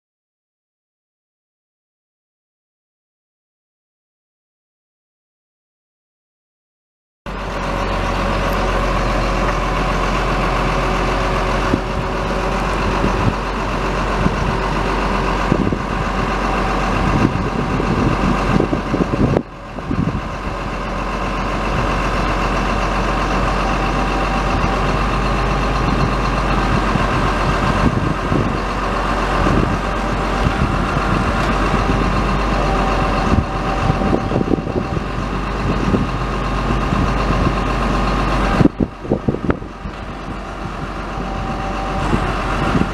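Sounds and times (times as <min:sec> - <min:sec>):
diesel engine idling: 0:07.3 - 0:42.9.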